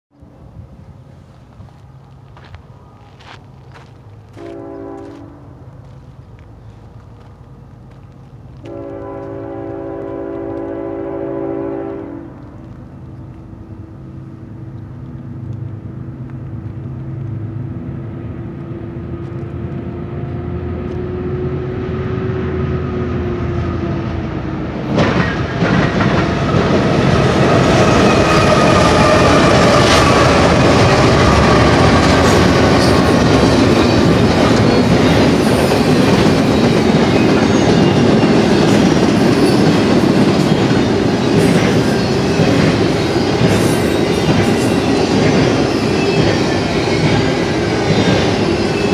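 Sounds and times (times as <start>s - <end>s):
diesel locomotives humming: 0.1s - 48.9s
freight cars rumbling on steel wheels: 12.2s - 48.9s.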